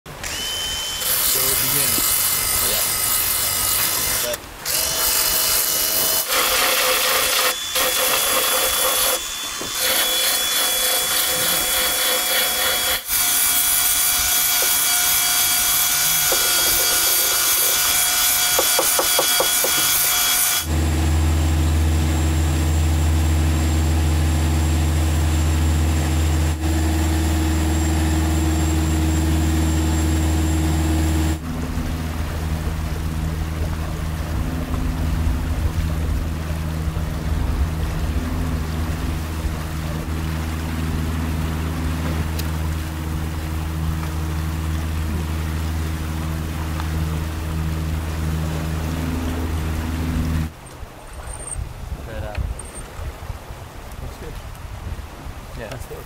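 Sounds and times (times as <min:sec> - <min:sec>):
power grinder whining: 0:00.2 - 0:20.9
low machinery hum: 0:20.6 - 0:56.0.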